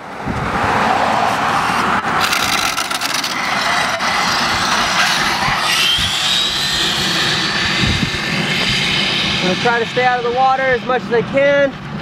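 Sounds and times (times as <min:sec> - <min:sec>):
steady rushing noise: 0:00.0 - 0:12.0
electric motor whining: 0:02.2 - 0:10.4.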